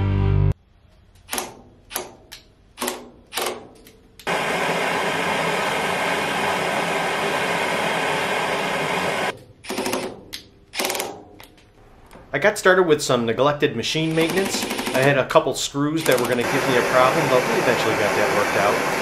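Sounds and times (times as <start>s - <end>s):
gas torch hissing: 4.3s - 9.3s, 16.3s - 19.0s.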